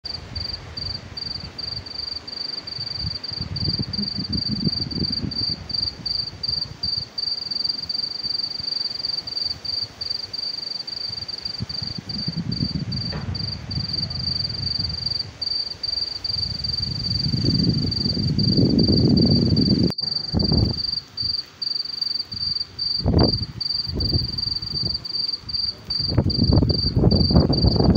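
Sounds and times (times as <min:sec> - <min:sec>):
crickets trilling: 0:00.1 - 0:27.9
low rumble: 0:12.1 - 0:15.2, 0:16.2 - 0:21.0.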